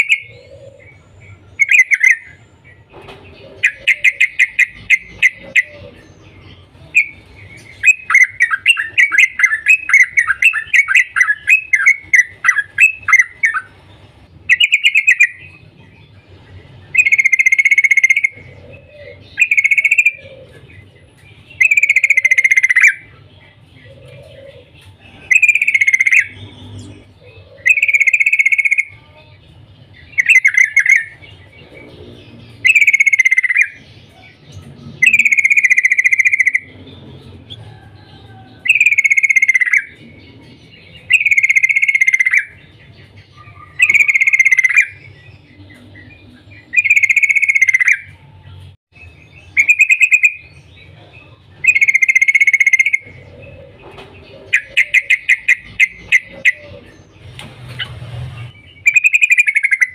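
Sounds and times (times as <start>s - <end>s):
bird singing wavering phrase: 25.1s - 37.1s, 37.7s - 53.7s, 54.4s - 57.1s.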